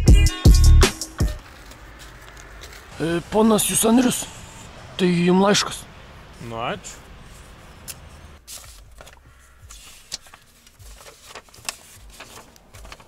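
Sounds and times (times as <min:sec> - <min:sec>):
paper rustling and crinkling: 0:01.4 - 0:03.0, 0:08.4 - 0:13.0.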